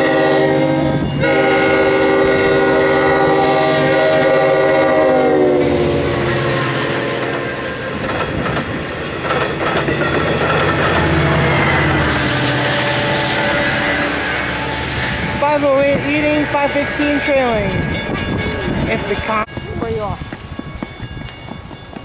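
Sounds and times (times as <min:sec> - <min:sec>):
locomotive air horn: 0:00.0 - 0:07.9, 0:11.1 - 0:18.5
train coaches rumbling and clacking: 0:00.0 - 0:22.0.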